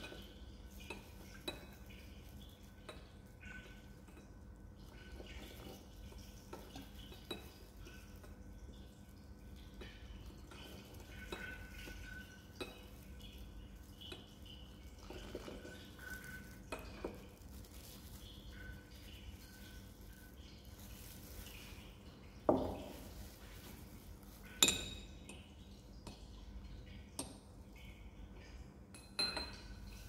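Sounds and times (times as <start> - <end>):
glass flask clinking on funnel: 24.4 - 25.4, 28.9 - 30.0.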